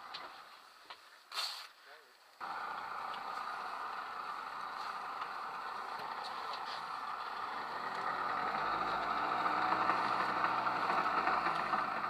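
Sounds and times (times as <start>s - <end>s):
engine idling: 2.4s - 12.0s.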